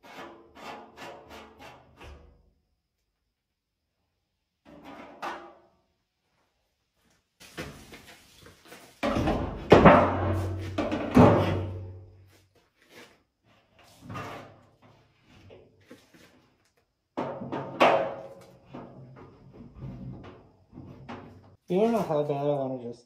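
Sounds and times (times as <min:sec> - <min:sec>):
metal clanks and knocks: 0:09.0 - 0:12.1, 0:17.2 - 0:21.6.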